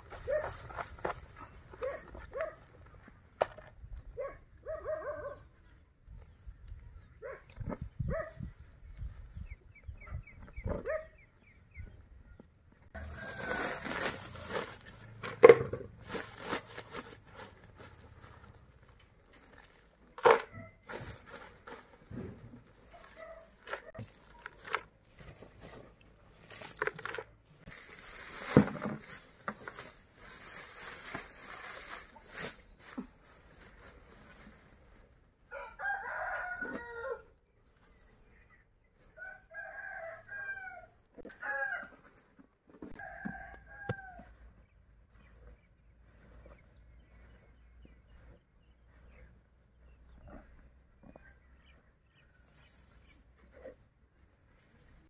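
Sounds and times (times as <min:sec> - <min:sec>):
rooster crowing: 0:13.0 - 0:13.8, 0:35.5 - 0:37.2
feed scooped from plastic sack: 0:13.0 - 0:15.2.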